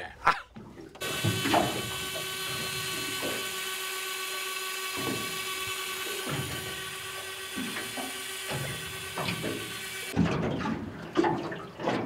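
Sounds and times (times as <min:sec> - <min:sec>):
electric fishing reel whirring: 0:01.0 - 0:10.2.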